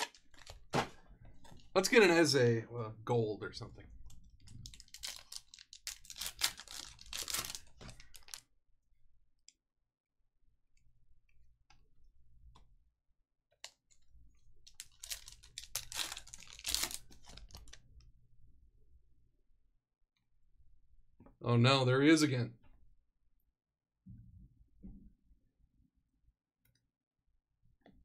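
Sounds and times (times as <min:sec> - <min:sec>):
wrappers tearing and crinkling: 0:04.6 - 0:08.4, 0:14.7 - 0:17.8.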